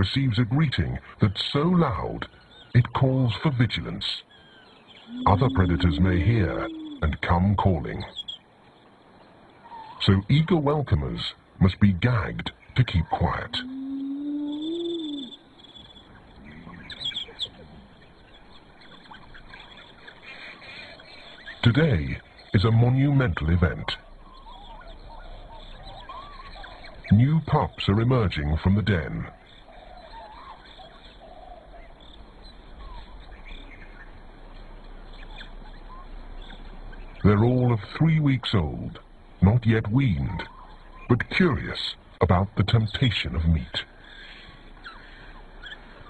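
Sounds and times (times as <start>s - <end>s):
steady low background hum: 0.0s - 46.0s
wild dogs twittering and squeaking: 4.3s - 7.2s, 13.1s - 27.2s, 29.3s - 34.2s, 40.4s - 41.1s, 44.2s - 46.0s
wild dog pups whining: 5.0s - 7.0s.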